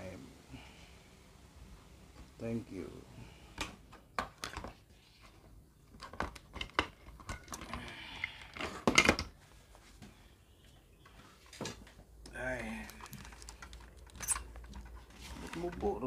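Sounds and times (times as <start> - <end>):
rustling: 12.6 - 16.0.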